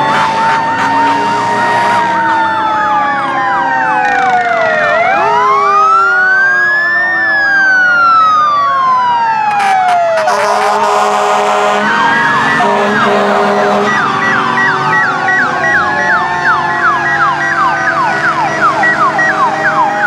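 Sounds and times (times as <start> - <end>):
horn blasts: 0.0 - 2.5, 10.0 - 18.3
fire truck sirens wailing: 0.0 - 20.0
siren yelps: 0.0 - 20.0.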